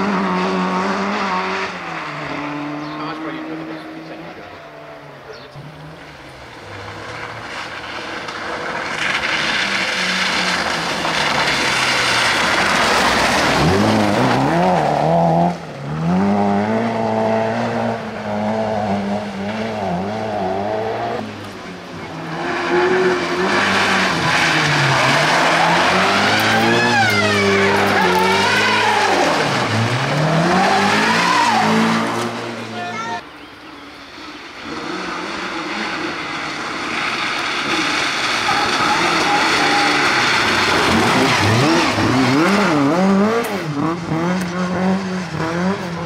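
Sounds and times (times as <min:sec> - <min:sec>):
rally car engine revving: 0:00.0 - 0:33.2, 0:33.8 - 0:46.0
tyres squealing: 0:24.1 - 0:33.9, 0:38.2 - 0:43.3.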